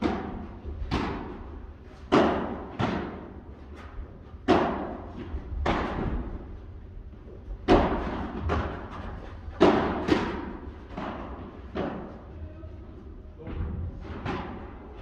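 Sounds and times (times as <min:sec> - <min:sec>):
padel ball hit with rackets: 0:07.7 - 0:08.9, 0:09.6 - 0:12.1.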